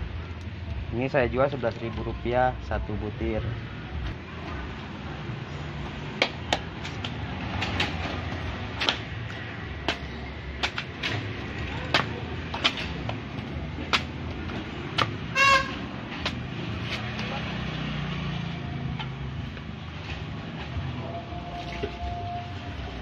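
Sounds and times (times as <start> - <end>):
machete chopping coconut husk: 5.8 - 15.2, 16.1 - 17.3
short horn toot: 15.3 - 15.8.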